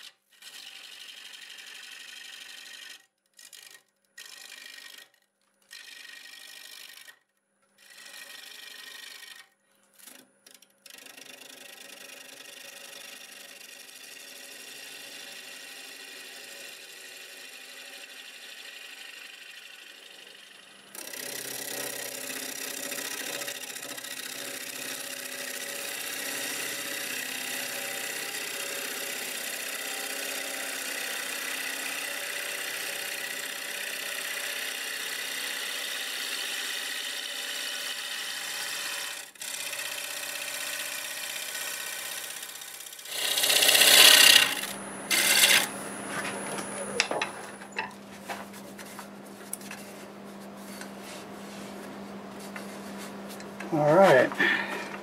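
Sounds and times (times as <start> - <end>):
gouge cutting wood on lathe: 0.0 - 7.2, 7.8 - 55.0
lathe motor humming: 12.1 - 55.0.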